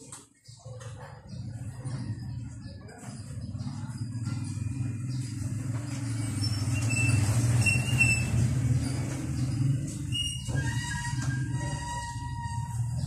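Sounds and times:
motorcycle engine idling: 0.6 - 10.1.

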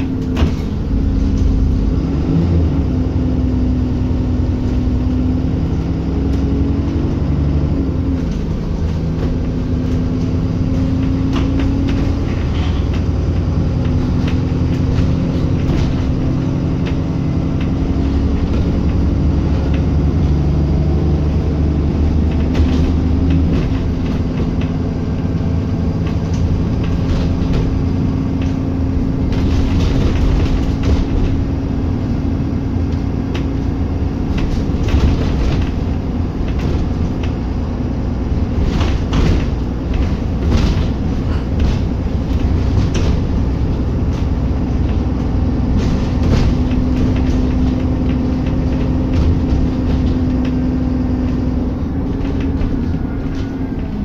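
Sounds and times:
bus engine drone: 0.0 - 54.0
road rumble: 0.0 - 54.0
clattering knocks: 8.1 - 54.0.

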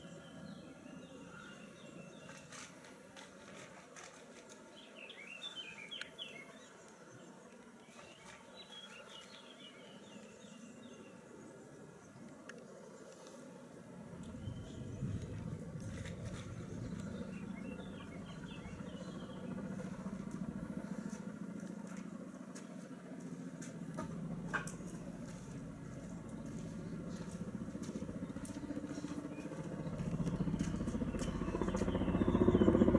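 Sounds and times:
helicopter rotors beating: 13.8 - 32.9.

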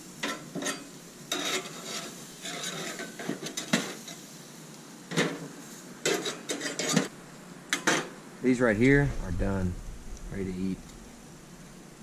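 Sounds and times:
meat sizzling: 0.0 - 12.0
metal spatula scraping grill grate: 0.1 - 4.4, 5.1 - 7.1.

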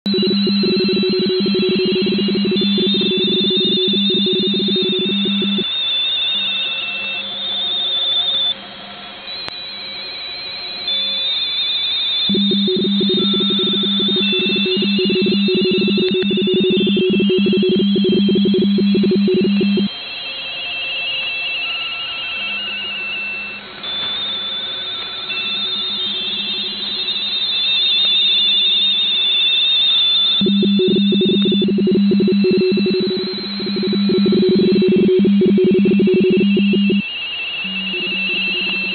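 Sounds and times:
radio teleprinter warbles: 0.1 - 5.6, 12.3 - 19.9, 30.4 - 37.0, 37.6 - 38.9
strong low-pitched radio signal: 0.1 - 5.6, 12.3 - 19.9, 30.4 - 37.0, 37.6 - 38.9.

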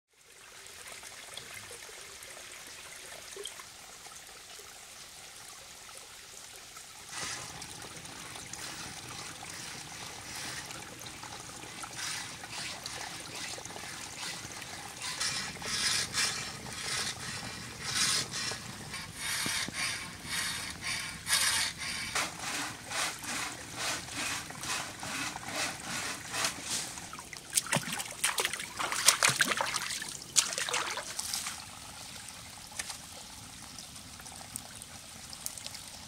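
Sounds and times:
stream trickling: 0.1 - 36.0
frame saw cutting wood: 7.1 - 7.6, 11.8 - 27.1.

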